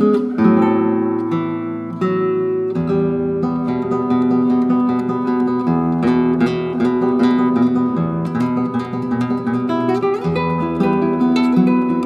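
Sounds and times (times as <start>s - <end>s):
acoustic guitar music: 0.0s - 12.0s.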